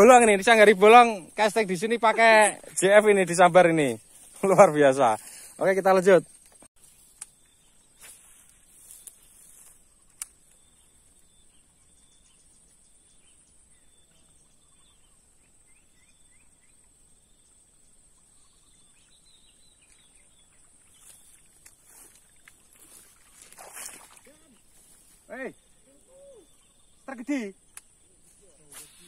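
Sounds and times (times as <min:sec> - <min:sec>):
bird chirps: 0:00.0 - 0:29.0
sharp click: 0:10.1 - 0:10.4, 0:27.7 - 0:27.9.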